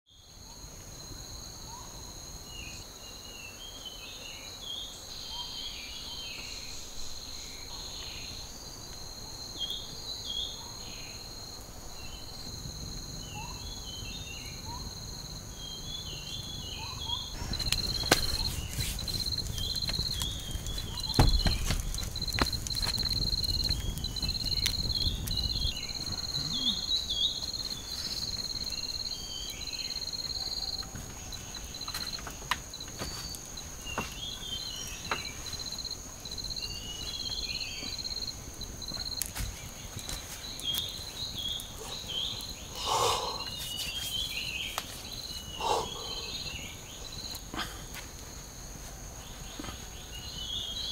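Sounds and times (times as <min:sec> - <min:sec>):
insects droning: 0:00.1 - 0:50.9
bird chirps: 0:13.2 - 0:22.1, 0:39.6 - 0:47.4
sharp crackles: 0:16.2 - 0:45.5.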